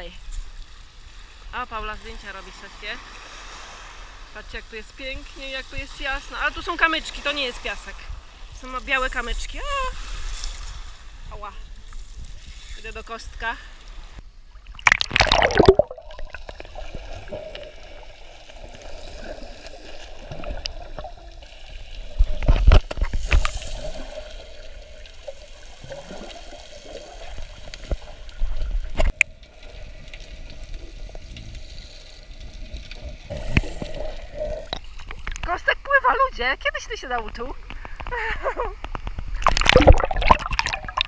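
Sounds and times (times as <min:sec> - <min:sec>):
water sloshing and gurgling: 0:00.3 - 0:36.3, 0:36.9 - 0:41.0
water splashes: 0:14.0 - 0:36.2, 0:38.9 - 0:41.0.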